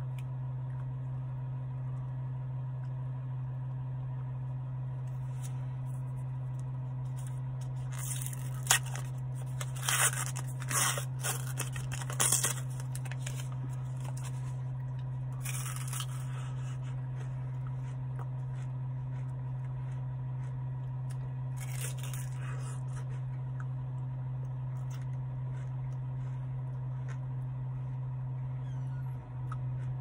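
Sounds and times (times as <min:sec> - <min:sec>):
low hum inside a car: 0:00.0 - 0:30.0
crunching bites into ice cream cone: 0:05.1 - 0:23.8.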